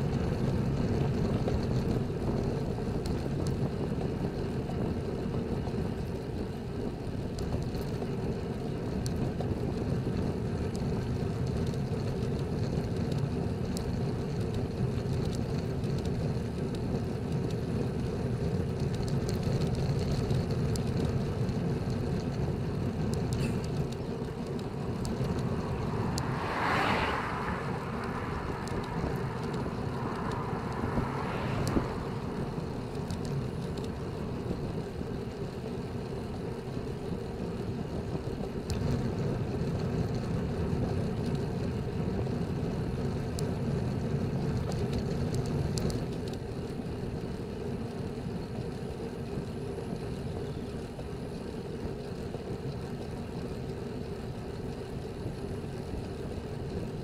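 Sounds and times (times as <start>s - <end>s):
road noise: 0.0s - 57.0s
wind rush: 24.3s - 34.7s.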